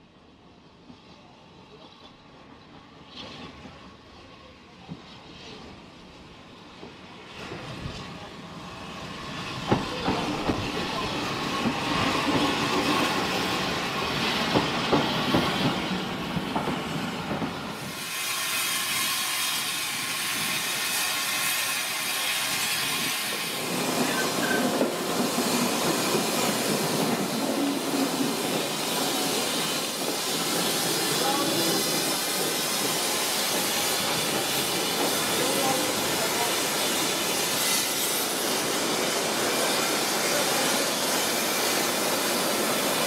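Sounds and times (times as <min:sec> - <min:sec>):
steam locomotive knocking and clatter: 0:04.8 - 0:05.7, 0:06.7 - 0:43.0
steam hissing: 0:07.3 - 0:43.0.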